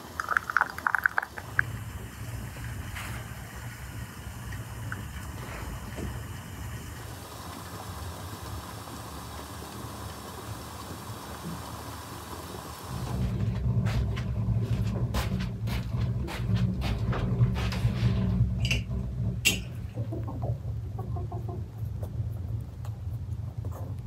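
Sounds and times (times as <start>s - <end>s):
tea pouring into glasses: 0.0s - 1.7s
low rumble on microphone: 12.9s - 24.0s.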